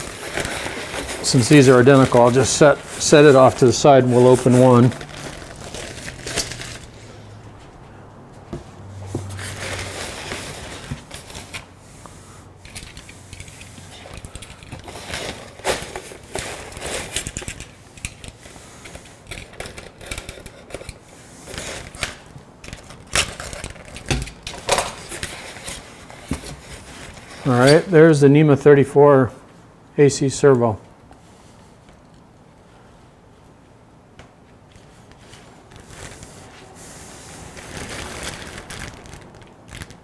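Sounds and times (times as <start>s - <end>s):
packing materials rustling: 0.0s - 7.3s, 9.2s - 28.0s, 34.8s - 40.0s.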